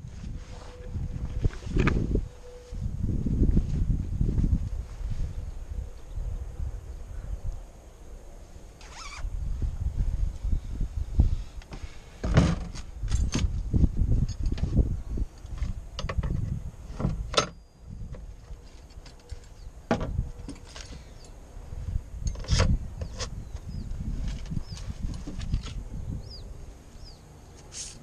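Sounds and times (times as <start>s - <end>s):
wind buffeting microphone: 0.0s - 7.7s, 8.9s - 18.5s, 19.6s - 27.2s.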